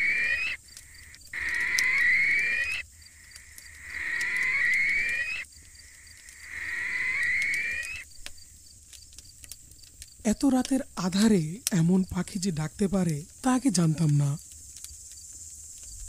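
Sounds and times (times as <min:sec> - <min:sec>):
bird call rising in pitch: 0:00.0 - 0:00.6, 0:01.4 - 0:02.8, 0:03.7 - 0:05.5, 0:06.4 - 0:08.0.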